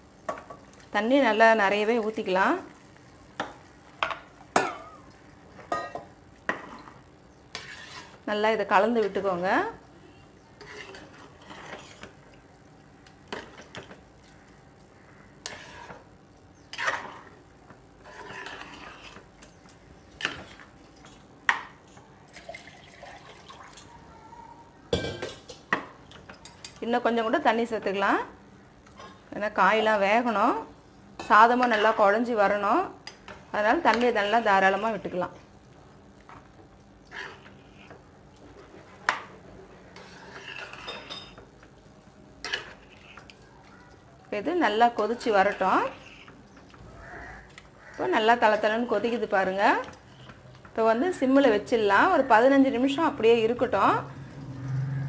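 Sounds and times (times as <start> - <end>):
ladle stirring thick mixture: 7.5 - 8.2, 10.6 - 12.3, 15.4 - 16.1, 18.0 - 21.2, 33.2 - 35.1, 39.8 - 41.6, 42.4 - 43.4.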